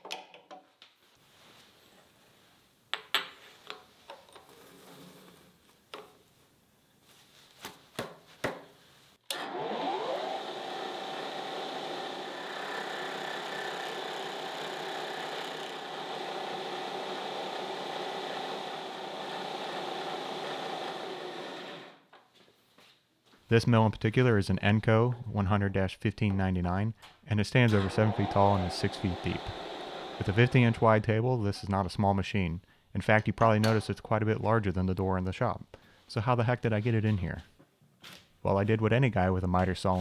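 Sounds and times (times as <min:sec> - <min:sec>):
end mill grinding metal: 0:09.3 - 0:22.0, 0:27.6 - 0:31.0
mill spindle starting: 0:09.3 - 0:22.0, 0:27.6 - 0:30.8.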